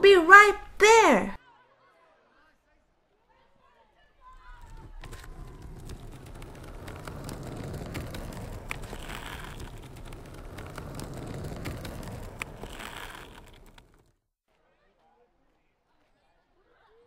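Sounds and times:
plastic wheels rolling on tabletop: 4.1 - 14.1.

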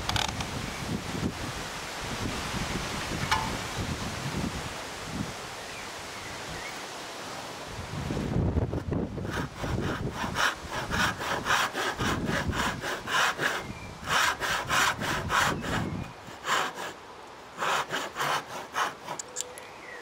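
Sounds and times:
backsaw rasping through board: 8.7 - 19.4.

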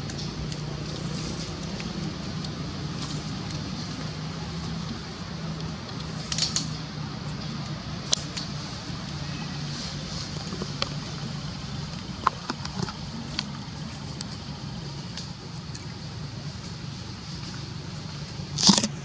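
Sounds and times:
sharp clicks and crackles: 5.6 - 6.8.

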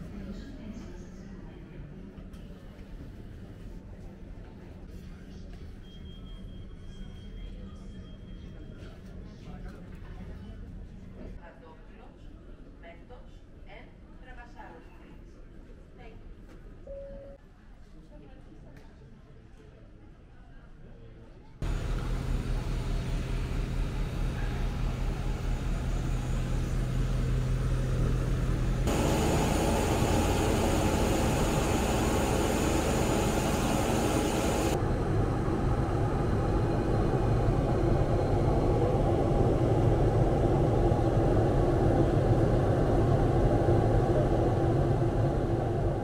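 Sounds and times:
airplane cabin drone: 21.6 - 46.0
jet engine hum: 21.6 - 46.0.

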